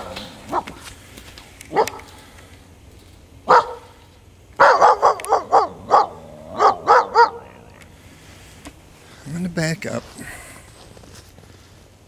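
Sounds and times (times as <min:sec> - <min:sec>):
young dog barking: 0:00.0 - 0:00.8, 0:01.7 - 0:02.2, 0:03.5 - 0:04.0, 0:04.6 - 0:07.7.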